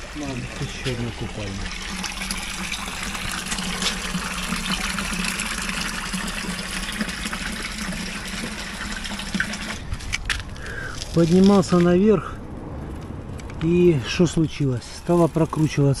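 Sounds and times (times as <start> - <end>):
water splashing into stone basin: 0.0 - 9.9.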